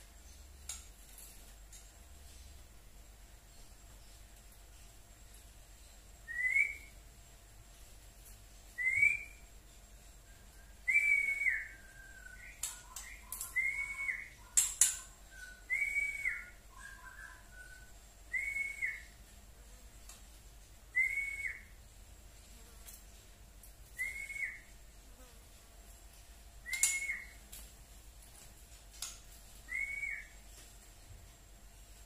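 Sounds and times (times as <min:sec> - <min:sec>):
bird whistled calls: 0:10.6 - 0:19.1, 0:26.6 - 0:27.4, 0:29.7 - 0:30.4
sharp bird clicks: 0:12.5 - 0:13.7, 0:14.4 - 0:15.2, 0:26.7 - 0:27.3.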